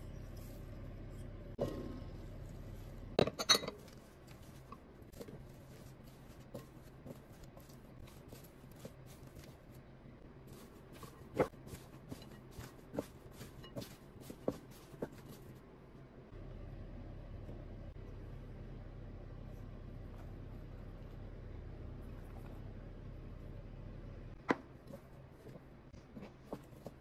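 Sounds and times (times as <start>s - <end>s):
vegetables rustling: 1.8s - 15.7s.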